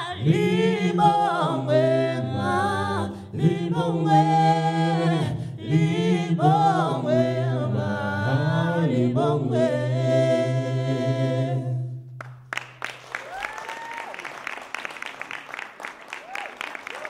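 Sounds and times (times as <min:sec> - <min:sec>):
a cappella harmony singing: 0:00.0 - 0:12.2
scattered applause: 0:12.2 - 0:17.0.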